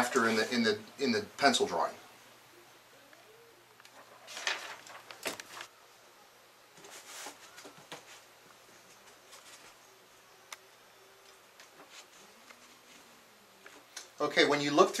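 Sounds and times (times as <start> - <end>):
rustling and scraping handling noise: 0.0 - 0.6, 3.8 - 5.7, 6.8 - 10.0, 11.6 - 14.0
faint steady hum: 0.0 - 15.0.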